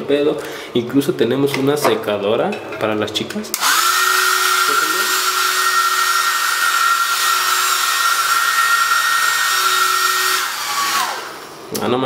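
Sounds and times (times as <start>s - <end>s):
hair dryer running: 3.5s - 11.7s.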